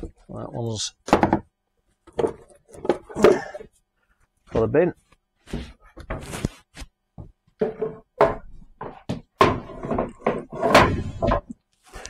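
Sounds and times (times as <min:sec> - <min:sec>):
wooden drawer parts knocking: 0:01.1 - 0:01.5, 0:07.6 - 0:11.6.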